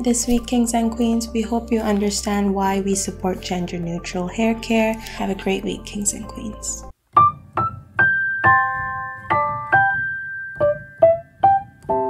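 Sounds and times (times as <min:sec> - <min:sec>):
solo piano: 0:07.1 - 0:12.0.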